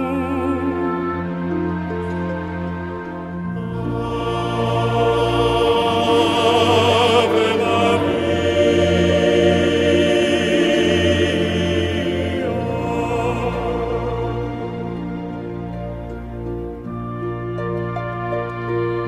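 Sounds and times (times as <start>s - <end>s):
choir singing held notes: 0.0s - 19.0s.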